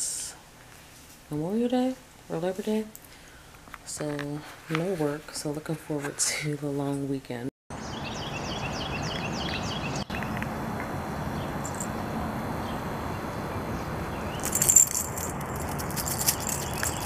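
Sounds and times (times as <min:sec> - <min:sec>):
outdoor background noise: 0:00.0 - 0:17.0
bird chirping: 0:07.7 - 0:10.4, 0:12.6 - 0:14.8, 0:16.1 - 0:17.0
dog collar jingling: 0:11.6 - 0:11.9, 0:14.4 - 0:17.0.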